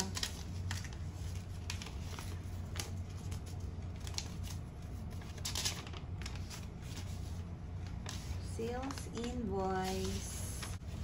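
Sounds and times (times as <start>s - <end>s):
paper crackles: 0.0s - 11.0s
paper rustling: 0.0s - 11.0s.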